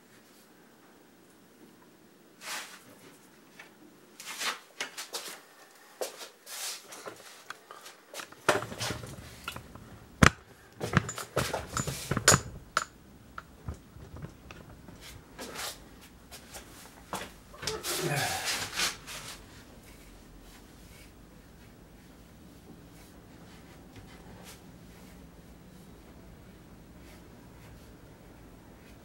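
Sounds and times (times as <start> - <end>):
handling rustles and knocks: 2.4 - 29.0.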